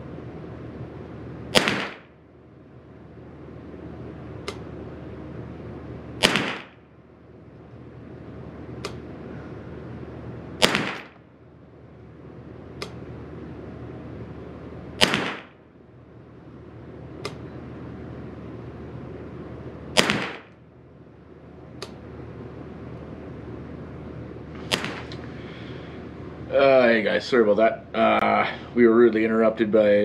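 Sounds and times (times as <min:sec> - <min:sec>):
steady low hum: 0:00.0 - 0:30.0
rifle shots with echo: 0:01.5 - 0:02.2, 0:06.2 - 0:06.9, 0:10.6 - 0:11.2, 0:15.0 - 0:15.6, 0:20.0 - 0:20.6, 0:24.7 - 0:25.1
faint sharp click: 0:04.4 - 0:04.6, 0:08.8 - 0:09.0, 0:17.2 - 0:17.4.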